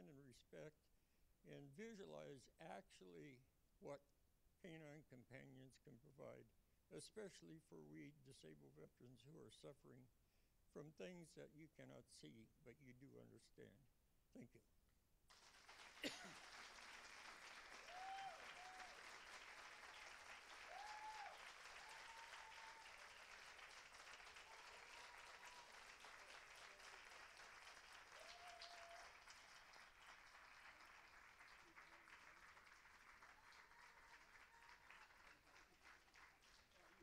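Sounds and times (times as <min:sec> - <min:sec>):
audience applauding: 0:15.3 - 0:37.0
short cheers: 0:17.7 - 0:19.2, 0:20.5 - 0:23.2, 0:24.3 - 0:26.7, 0:28.1 - 0:29.4.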